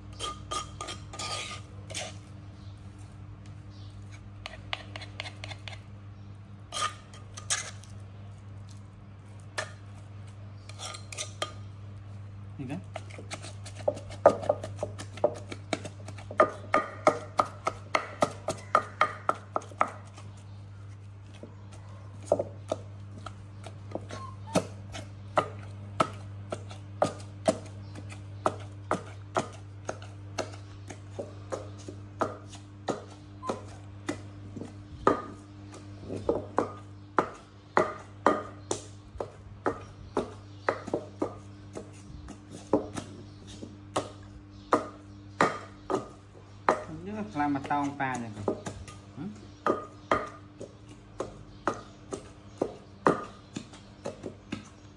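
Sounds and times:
wooden pestle pounding in mortar: 0:12.8 - 0:20.3, 0:22.2 - 0:54.9.

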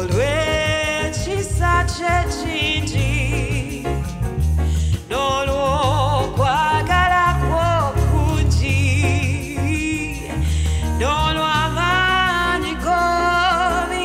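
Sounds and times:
gospel band with heavy bass: 0:00.0 - 0:14.0.

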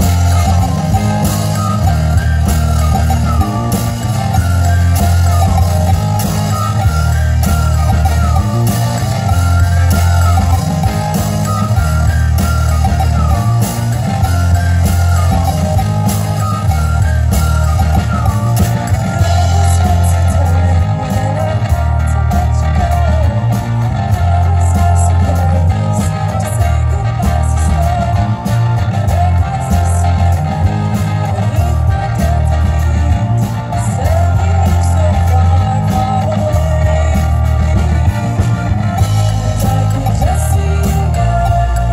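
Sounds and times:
accordion melody: 0:00.0 - 0:41.9
drums: 0:00.0 - 0:41.9
heavy electric bass line: 0:00.0 - 0:41.9
synth-pop band over speakers: 0:00.0 - 0:41.9.

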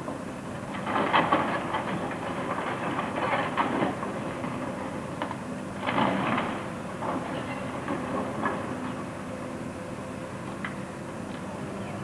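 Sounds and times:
excavator engine running: 0:00.0 - 0:12.0.

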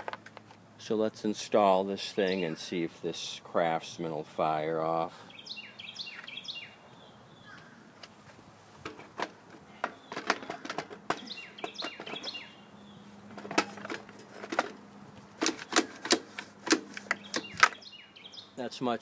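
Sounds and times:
plastic knocking against metal: 0:08.8 - 0:12.3.

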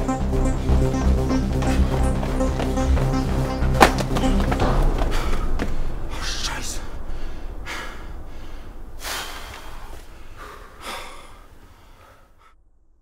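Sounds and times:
men breathing heavily: 0:01.2 - 0:03.2, 0:03.8 - 0:12.6.

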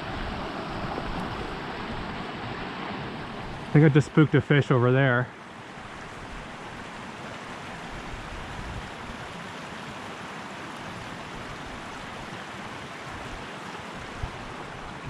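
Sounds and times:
creek water rushing: 0:00.0 - 0:15.0.

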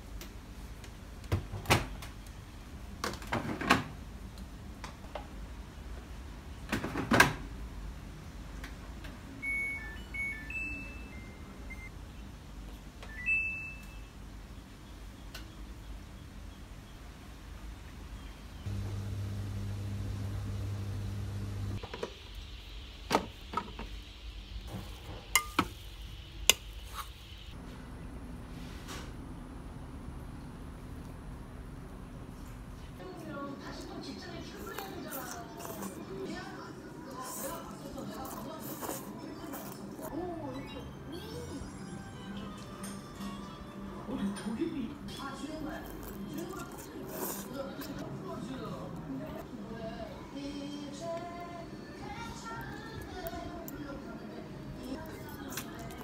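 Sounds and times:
washing machine humming: 0:18.7 - 0:25.6.

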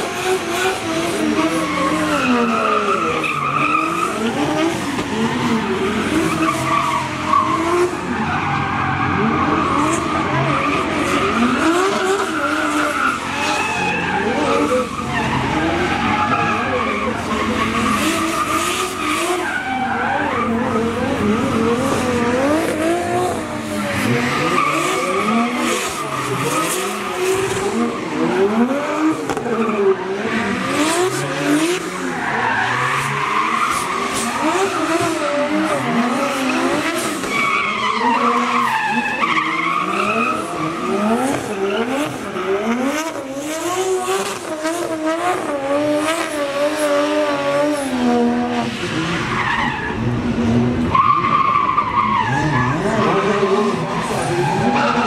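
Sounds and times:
car engine revving hard: 0:00.0 - 0:51.0.

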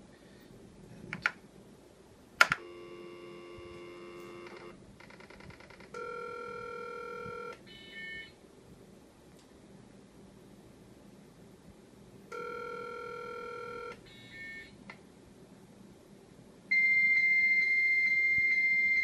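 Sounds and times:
phone line click: 0:02.4 - 0:04.8
dial tone: 0:02.6 - 0:04.8, 0:05.9 - 0:08.3, 0:12.3 - 0:14.7, 0:16.7 - 0:19.0.

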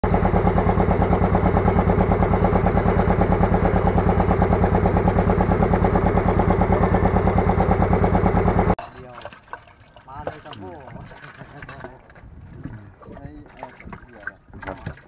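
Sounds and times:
boat engine idling: 0:00.0 - 0:09.2.

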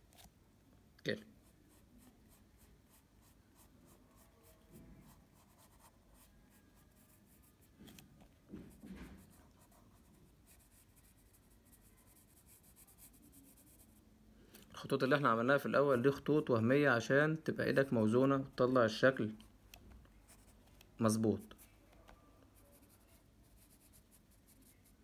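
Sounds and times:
pencil scratching on paper: 0:01.3 - 0:07.8, 0:08.6 - 0:14.0, 0:20.3 - 0:20.6, 0:22.6 - 0:25.0.

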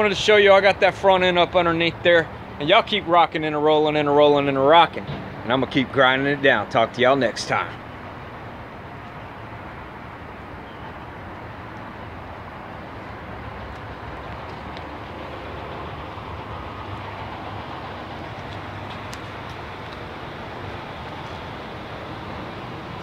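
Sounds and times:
low rumbling noise: 0:07.6 - 0:23.0.

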